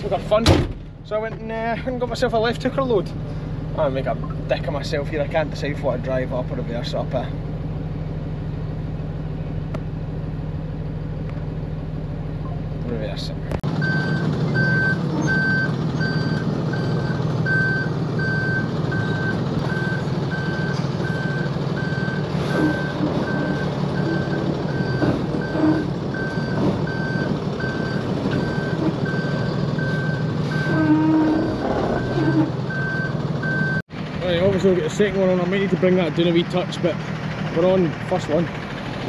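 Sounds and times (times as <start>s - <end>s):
engine humming: 0.0s - 39.0s
reversing alarm beeping: 13.8s - 33.8s.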